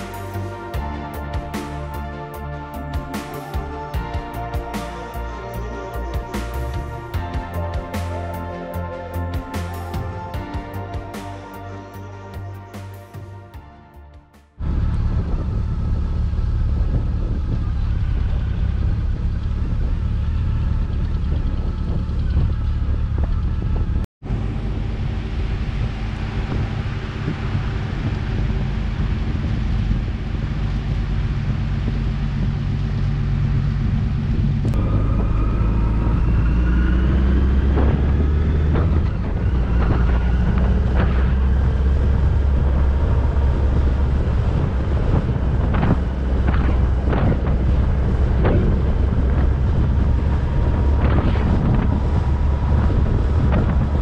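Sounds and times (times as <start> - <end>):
rising whine: 0.0 - 54.0
vehicle engine running: 0.0 - 54.0
wind noise on microphone: 14.6 - 54.0.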